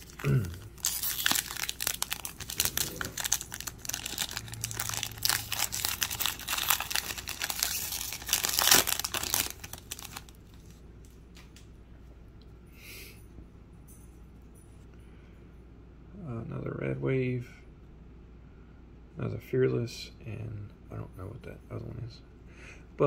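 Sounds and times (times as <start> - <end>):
wrapper crinkling and tearing: 0.0 - 10.8.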